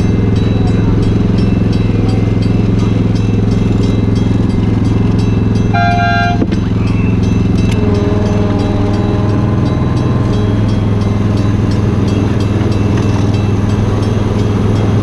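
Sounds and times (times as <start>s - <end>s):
miniature train engine running: 0.0s - 15.0s
wheels clicking on rails: 0.0s - 15.0s
train horn toot: 5.7s - 10.0s.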